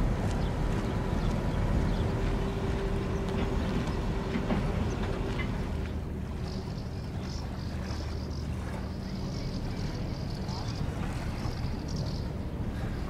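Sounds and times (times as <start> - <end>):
diesel engines rumbling: 0.0 - 13.0
light ticks: 0.2 - 2.0.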